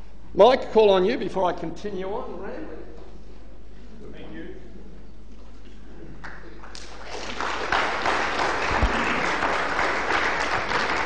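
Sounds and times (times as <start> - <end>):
audience applauding: 6.2 - 11.0.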